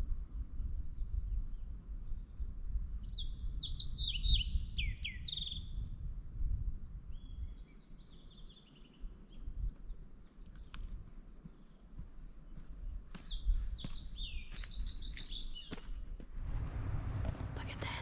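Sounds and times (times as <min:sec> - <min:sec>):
songbird singing: 0:00.3 - 0:05.9, 0:07.1 - 0:10.8, 0:11.5 - 0:18.0
low rumble: 0:16.3 - 0:18.0.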